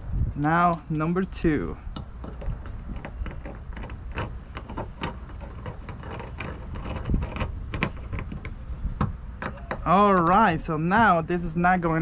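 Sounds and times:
screwdriver clicks and scrapes: 1.9s - 8.6s.

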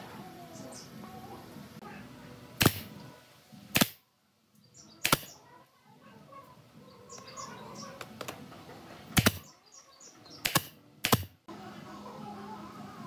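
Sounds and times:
brad nailer shots: 2.6s - 2.9s, 3.7s - 4.0s, 5.0s - 5.3s, 9.2s - 9.5s, 10.4s - 11.4s.

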